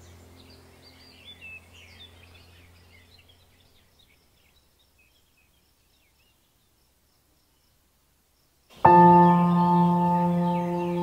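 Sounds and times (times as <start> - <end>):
faint birdsong: 0.0 - 11.0
ambient music held chord: 8.8 - 11.0.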